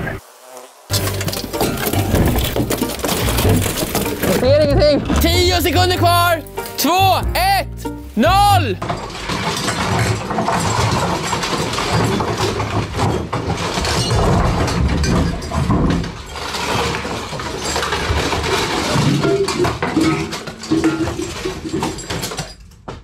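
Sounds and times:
wooden table breaking: 0:00.9 - 0:04.5, 0:08.8 - 0:23.0
boards clattering onto floor: 0:00.9 - 0:05.5, 0:08.8 - 0:23.0
plate armour clanking: 0:00.9 - 0:05.9, 0:08.8 - 0:23.0.

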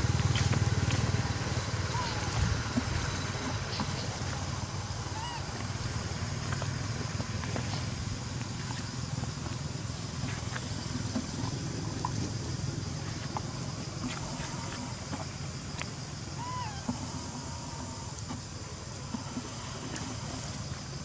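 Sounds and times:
constant low rumble: 0:00.0 - 0:21.0
faint squeak: 0:05.1 - 0:05.5.

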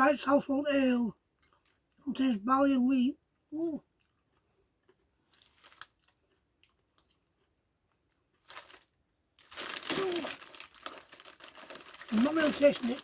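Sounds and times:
crisp packet crinkling: 0:05.2 - 0:07.2, 0:08.4 - 0:13.0.

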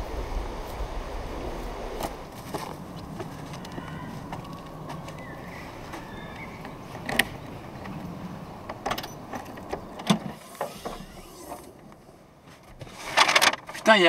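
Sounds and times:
car tailgate clicks and knocks: 0:08.6 - 0:11.8.

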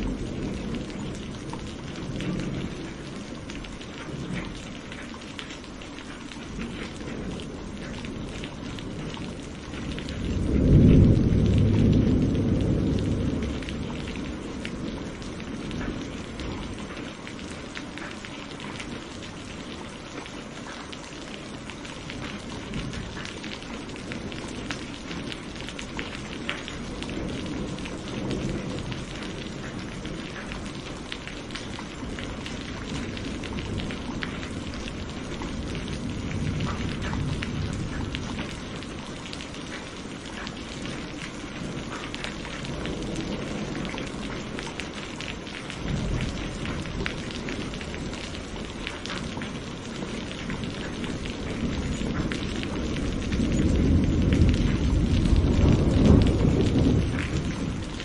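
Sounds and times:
steady rain: 0:00.0 - 0:58.0
thunder rumbling: 0:00.0 - 0:58.0.

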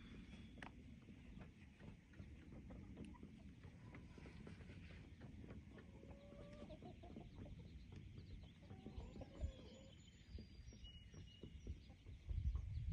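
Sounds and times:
hens clucking: 0:01.3 - 0:10.0.

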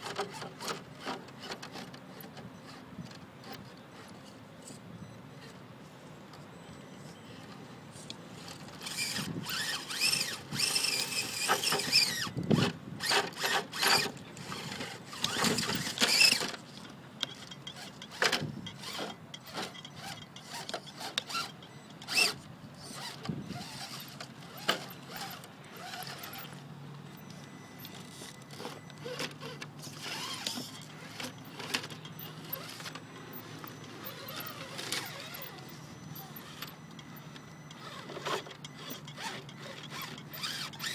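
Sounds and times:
rc car motor whining: 0:08.4 - 0:16.6, 0:17.7 - 0:26.6, 0:27.2 - 0:40.9
tires clicking and scraping on stone: 0:08.4 - 0:27.2, 0:37.8 - 0:40.9.

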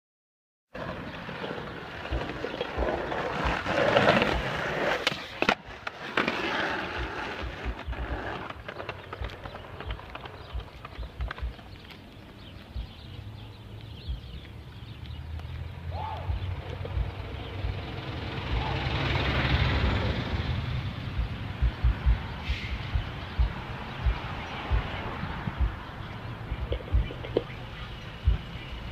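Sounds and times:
skateboard wheels rolling on concrete: 0:00.7 - 0:28.9
skateboard clicks and knocks: 0:00.8 - 0:12.8, 0:26.6 - 0:27.6.

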